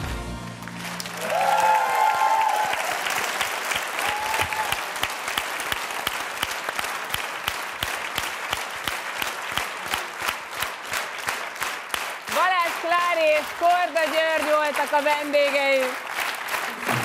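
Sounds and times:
audience applauding: 0.4s - 17.0s.

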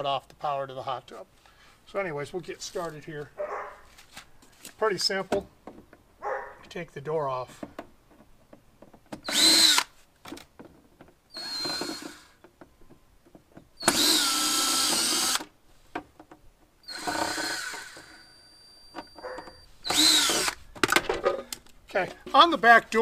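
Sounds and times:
cordless drill bursts: 9.2s - 10.0s, 11.3s - 12.4s, 13.8s - 15.5s, 16.8s - 19.2s, 19.8s - 20.6s.

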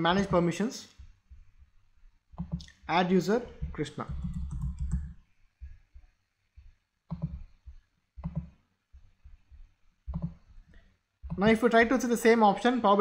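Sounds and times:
keyboard typing: 0.0s - 1.1s, 2.3s - 2.8s, 3.4s - 5.3s, 7.0s - 8.6s, 10.1s - 12.0s.

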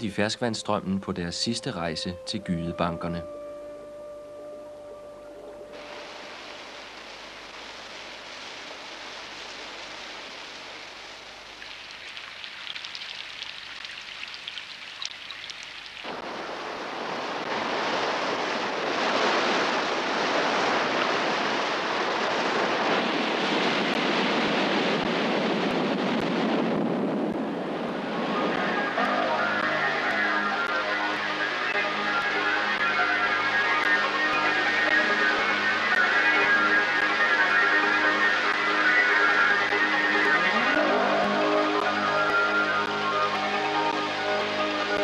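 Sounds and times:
heavy surf rushing: 1.5s - 12.4s, 16.0s - 45.0s
wind hissing: 3.6s - 45.0s.

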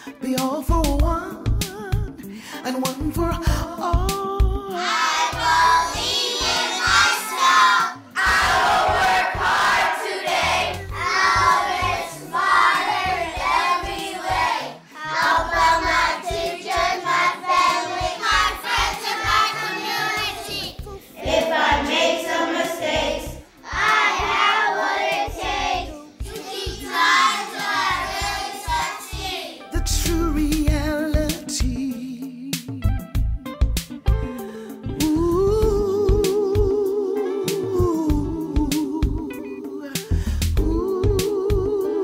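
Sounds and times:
children singing together: 4.7s - 29.6s.

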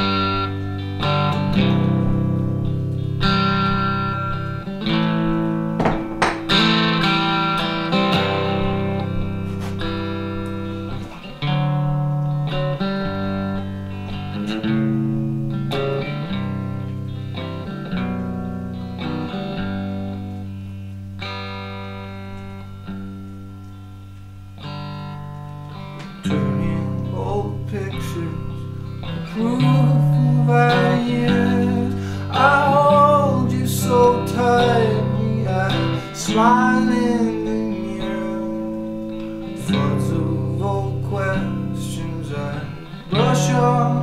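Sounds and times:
electric guitar: 0.0s - 44.0s
man singing: 26.2s - 44.0s.

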